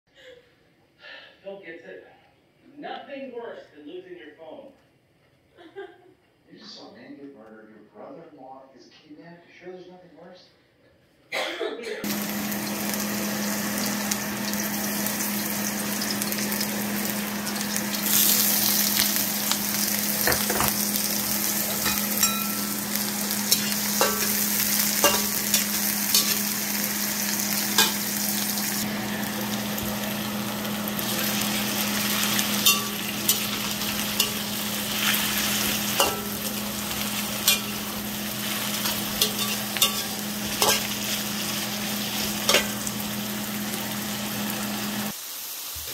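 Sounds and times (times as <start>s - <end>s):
food sizzling in hot oil: 12.0s - 45.9s
spatula scraping a wok: 19.8s - 28.4s, 32.0s - 42.9s.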